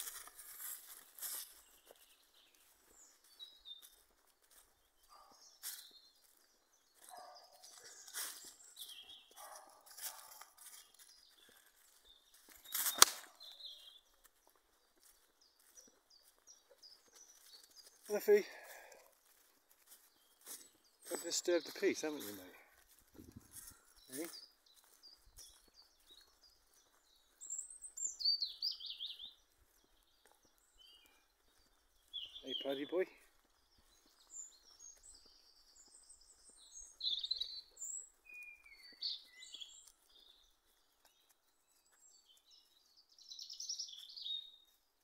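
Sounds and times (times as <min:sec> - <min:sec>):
footsteps on dry leaves: 0:00.0 - 0:27.5, 0:28.8 - 0:41.8
songbird singing: 0:00.0 - 0:45.0
crunching rustle with snap: 0:12.4 - 0:13.6
small bird chirping: 0:23.1 - 0:44.8.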